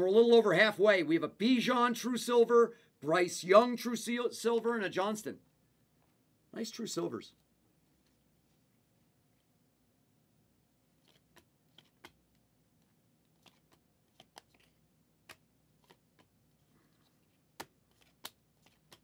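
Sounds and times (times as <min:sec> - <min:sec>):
trading cards clicking and snapping: 0:11.0 - 0:12.4, 0:13.3 - 0:19.0.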